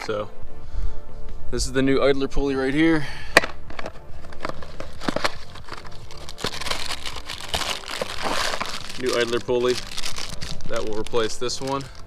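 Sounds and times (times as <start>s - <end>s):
background music: 0.0s - 12.0s
plastic bag crinkling: 4.6s - 12.0s.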